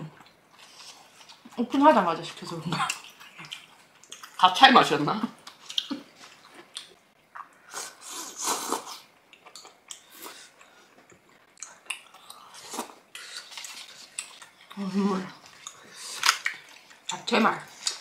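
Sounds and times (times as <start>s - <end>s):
chewing: 2.7s - 4.4s, 5.4s - 18.0s.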